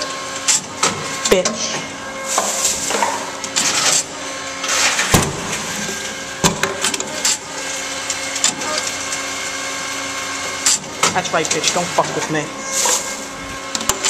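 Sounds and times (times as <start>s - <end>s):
machine motor hum: 0.0s - 14.0s.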